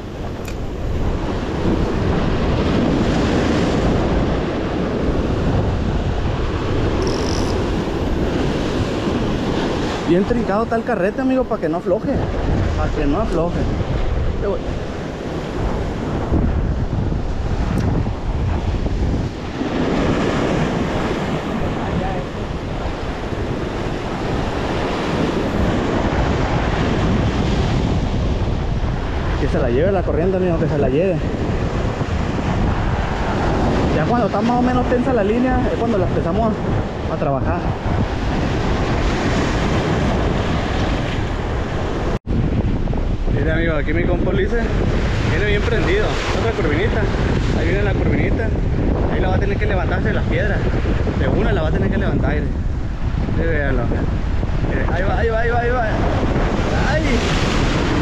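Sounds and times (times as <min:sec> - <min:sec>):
wind buffeting microphone: 0:00.0 - 0:58.0
surf breaking over rocks: 0:43.4 - 0:58.0
surf breaking on rocks: 0:54.6 - 0:58.0.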